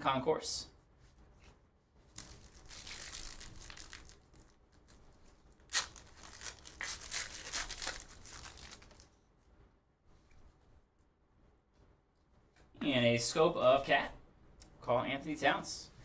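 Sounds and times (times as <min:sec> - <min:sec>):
wrapper tearing and crinkling: 0:02.1 - 0:05.0, 0:05.6 - 0:09.1.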